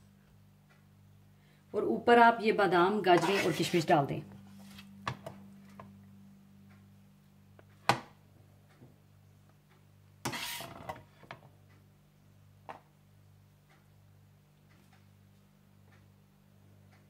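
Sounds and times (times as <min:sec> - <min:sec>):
faint steady low hum: 0:00.0 - 0:17.0.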